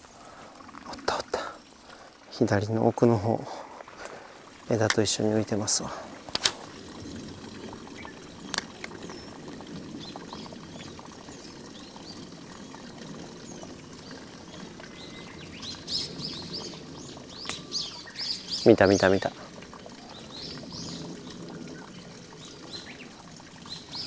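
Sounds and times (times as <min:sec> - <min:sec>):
trickle of running water: 0:00.0 - 0:24.0
small birds chirping: 0:06.8 - 0:24.0.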